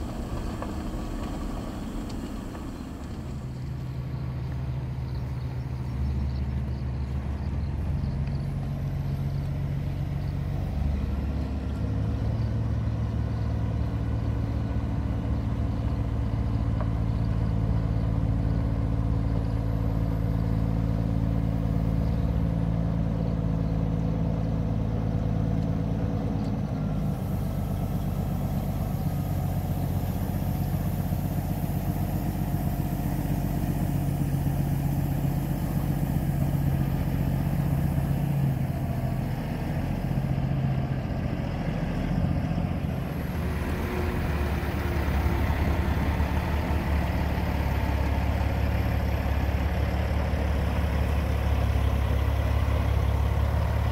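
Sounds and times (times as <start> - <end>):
diesel truck engine running: 0.0 - 53.9.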